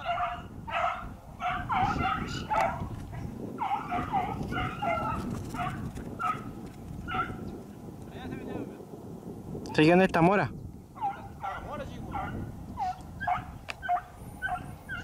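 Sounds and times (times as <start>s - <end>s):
dogs yelping: 0.0s - 7.5s, 11.0s - 15.0s.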